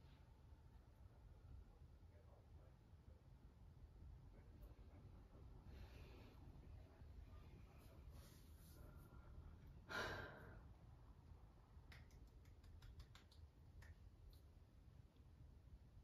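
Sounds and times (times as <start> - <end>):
woman sighing: 9.9 - 10.5.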